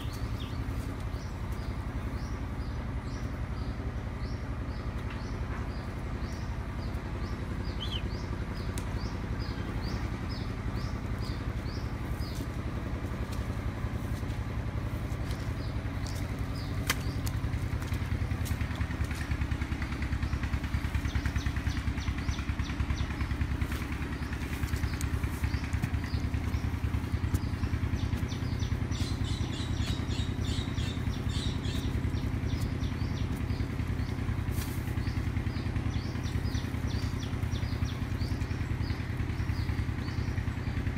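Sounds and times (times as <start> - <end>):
small engine droning: 0.0 - 40.9
high bird chirps: 5.1 - 12.5, 20.4 - 40.4.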